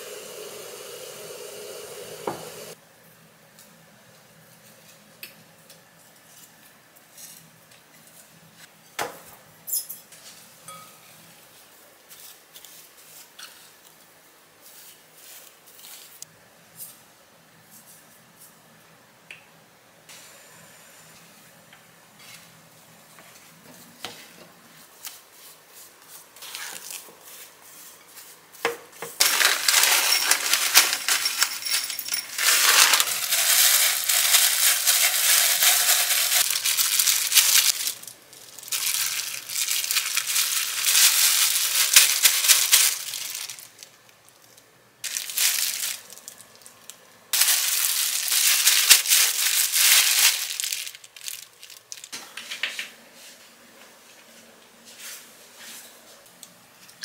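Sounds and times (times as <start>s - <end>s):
plastic gloves crinkling: 24.8s - 28.4s, 29.2s - 52.2s.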